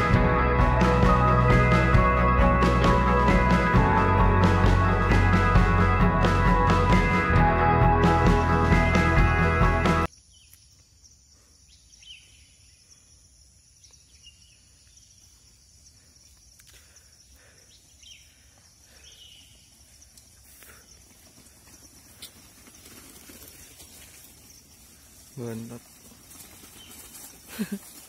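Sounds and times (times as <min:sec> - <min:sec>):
bird chirps: 0:10.1 - 0:16.6
insect drone: 0:10.1 - 0:28.0
mountain bikes rolling over stones: 0:19.3 - 0:28.0.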